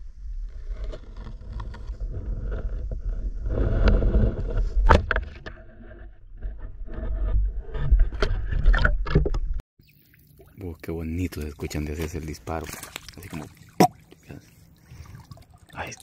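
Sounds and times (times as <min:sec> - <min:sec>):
water sloshing and churning: 0:09.8 - 0:16.0.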